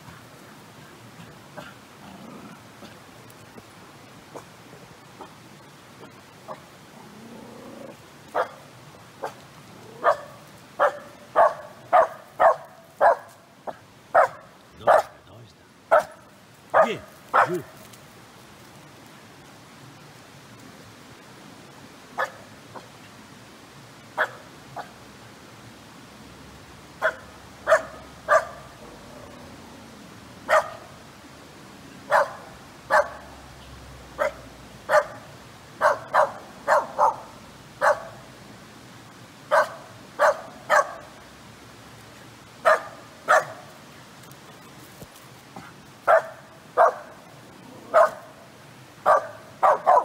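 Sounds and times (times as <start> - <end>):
dog barking: 8.4 - 8.6, 10.0 - 13.3, 14.2 - 15.2, 15.9 - 16.2, 16.8 - 17.7, 24.2 - 24.4, 27.0 - 28.6, 30.5 - 30.8, 32.1 - 33.2, 34.2 - 38.2, 39.5 - 41.1, 42.6 - 43.6, 46.1 - 47.1, 47.9 - 48.3, 49.1 - 50.0.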